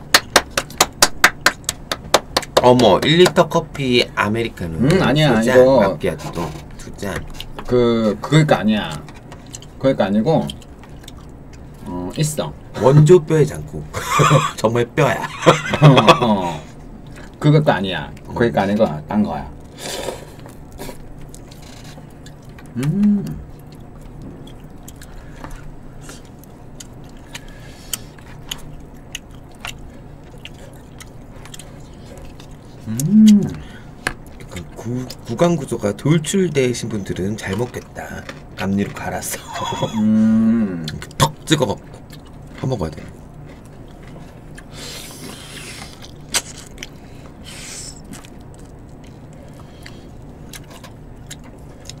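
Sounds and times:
faint steady hum: 0.0s - 52.0s
chewing and gnawing meat: 8.8s - 13.2s, 15.0s - 40.0s, 40.8s - 52.0s.

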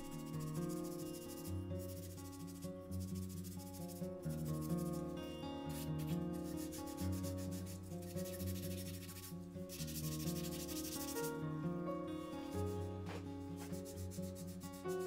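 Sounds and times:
sponge wet sanding: 0.0s - 5.0s, 5.7s - 11.3s, 13.6s - 15.0s
soft background music: 0.0s - 15.0s.

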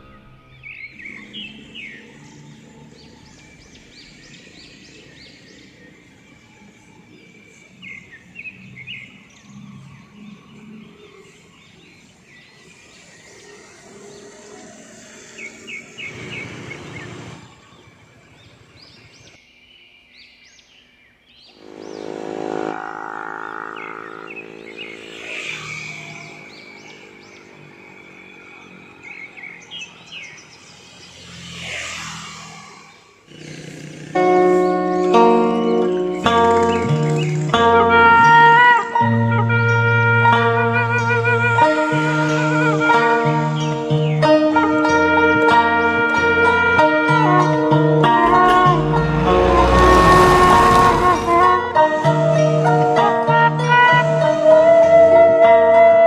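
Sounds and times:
passing motor vehicle engine: 21.6s - 38.2s, 47.2s - 53.0s.

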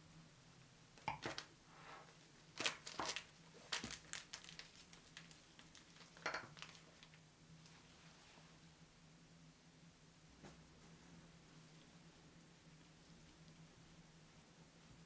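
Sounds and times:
plastic piping bag crinkling: 2.5s - 7.2s.

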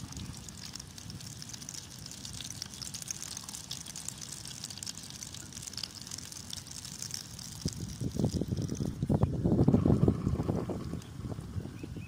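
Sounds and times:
bread frying in hot oil: 0.0s - 9.3s.

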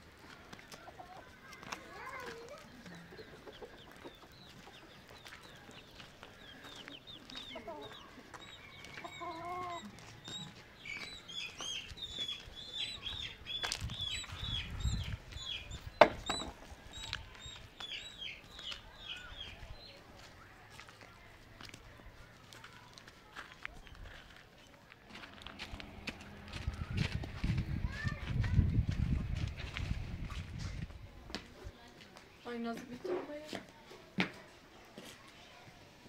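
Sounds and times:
chickens clucking: 0.2s - 20.0s.

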